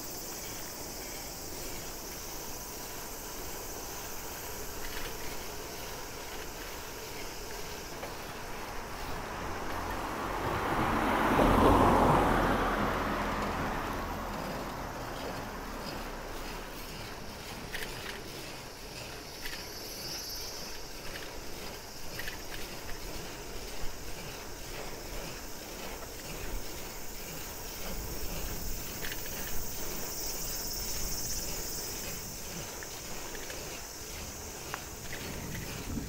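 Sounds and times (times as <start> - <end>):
bicycle ticking: 0.0 - 36.0
bicycle tyre rumble: 0.0 - 36.0
cicadas droning: 0.0 - 36.0
wind: 0.0 - 36.0.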